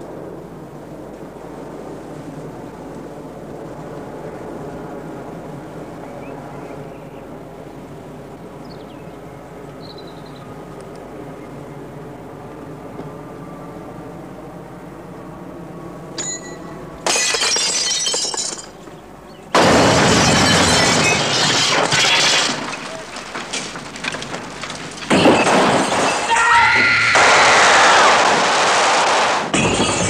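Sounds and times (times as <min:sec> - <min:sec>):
glass shattering: 0:16.2 - 0:18.9, 0:19.6 - 0:30.0
debris falling: 0:17.0 - 0:30.0
person shouting: 0:26.2 - 0:27.1.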